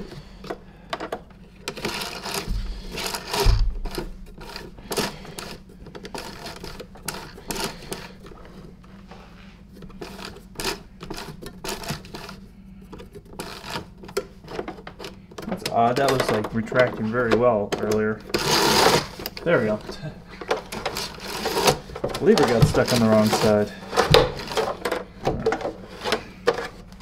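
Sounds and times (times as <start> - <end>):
dull thumps: 2.4 - 4.9
plastic clicks and knocks: 12.9 - 18.0.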